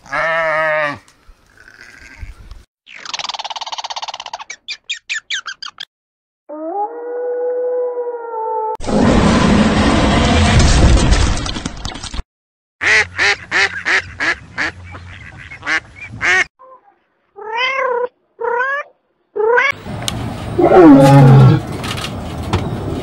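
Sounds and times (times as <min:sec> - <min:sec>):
lion calling: 0:20.6 - 0:21.6.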